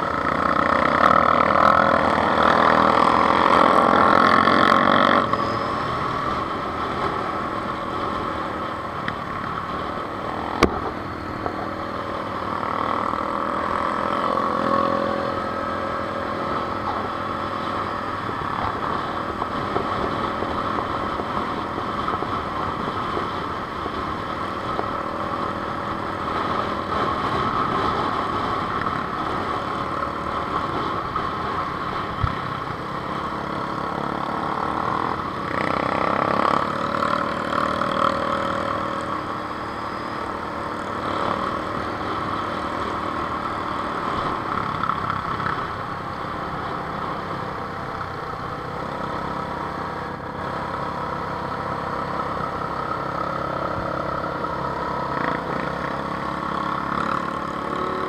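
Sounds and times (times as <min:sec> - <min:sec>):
motorcycle engine running: 0:00.0 - 0:58.0
quad bike engines: 0:00.0 - 0:58.0.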